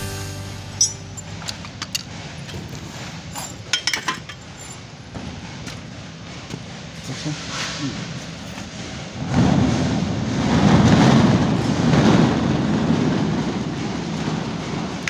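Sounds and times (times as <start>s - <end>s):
background hiss: 0.0s - 1.5s.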